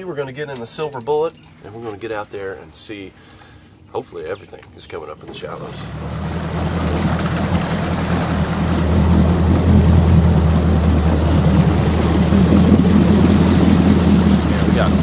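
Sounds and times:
outboard motor humming: 0:05.2 - 0:15.0
propeller wash churning: 0:05.2 - 0:15.0.

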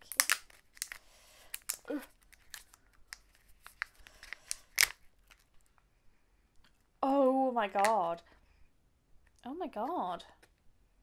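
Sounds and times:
sachet tearing and crinkling: 0:00.0 - 0:05.7.

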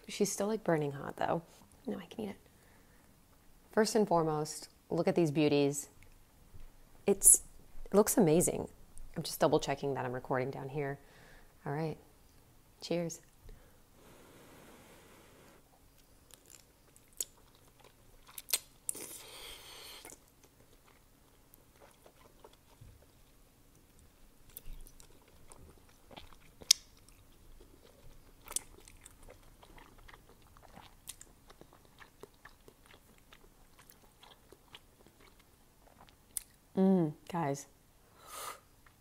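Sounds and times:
soft wet chewing: 0:05.9 - 0:06.8, 0:15.7 - 0:36.7
mouth clicks and smacks: 0:18.3 - 0:19.2, 0:24.5 - 0:27.2.

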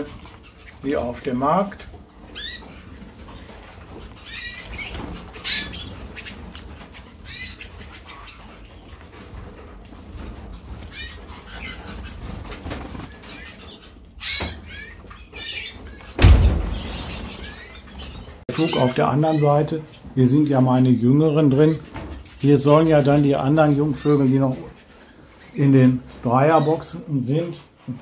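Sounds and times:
canaries chirping: 0:00.0 - 0:28.0
wings fluttering: 0:00.0 - 0:28.0
dull thump: 0:16.2 - 0:17.4.

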